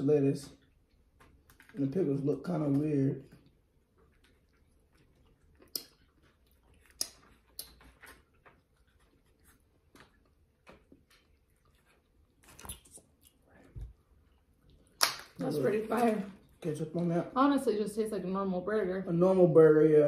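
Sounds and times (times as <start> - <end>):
chewing and mouth sounds: 2.6 - 17.0
mouth smacks and clicks: 3.3 - 13.9.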